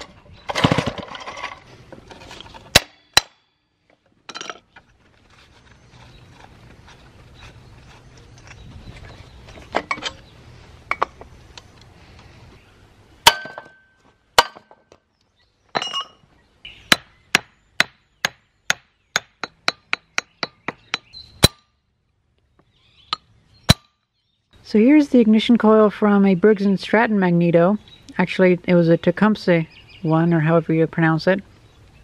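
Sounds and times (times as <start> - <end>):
hammer striking metal chisel: 16.9 - 21.7.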